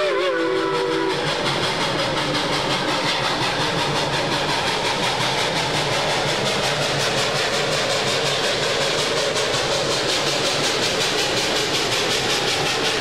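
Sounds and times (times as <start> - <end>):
steam whistle: 0.0 - 1.4
steam locomotive exhaust beating: 0.0 - 13.0.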